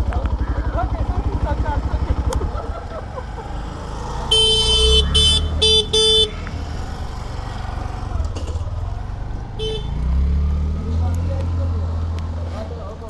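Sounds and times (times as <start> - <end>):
engine idling: 0.0 - 10.0
vehicle horn honking: 4.3 - 6.4, 9.6 - 10.0.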